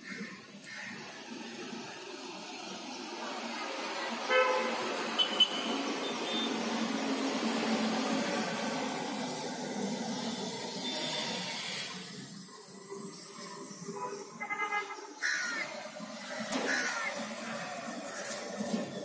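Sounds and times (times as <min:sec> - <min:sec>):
city road traffic: 0:00.0 - 0:19.0
vehicle horn honk: 0:04.3 - 0:06.5.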